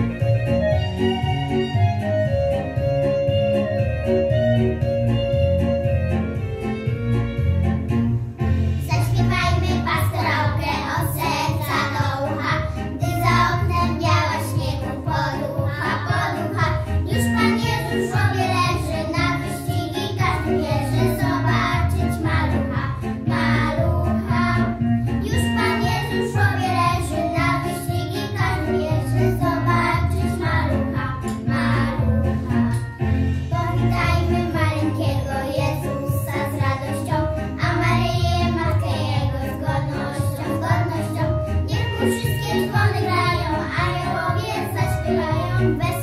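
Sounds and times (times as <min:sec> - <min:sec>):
instrumental accompaniment with bass: 0:00.0 - 0:46.0
girls singing together: 0:08.9 - 0:32.9, 0:33.5 - 0:46.0.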